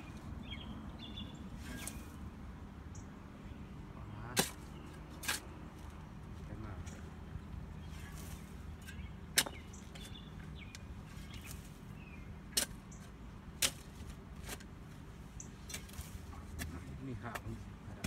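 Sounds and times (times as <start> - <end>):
hand tool striking soil: 4.3 - 5.5, 8.0 - 11.8, 12.5 - 14.8, 15.6 - 18.0.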